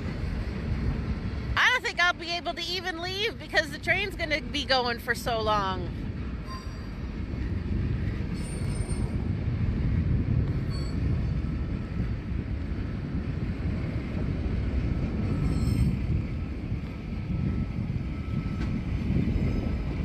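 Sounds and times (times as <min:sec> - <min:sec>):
freight train rumbling past: 0:00.0 - 0:20.0
high wheel squeals: 0:06.4 - 0:07.1, 0:08.3 - 0:09.2, 0:15.3 - 0:16.2.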